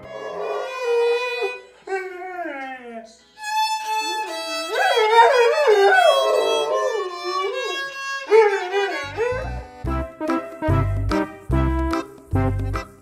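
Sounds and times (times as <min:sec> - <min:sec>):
violin playing: 0:00.0 - 0:01.8, 0:03.4 - 0:05.8, 0:06.4 - 0:09.8
dog howling: 0:00.0 - 0:02.9, 0:04.7 - 0:09.4.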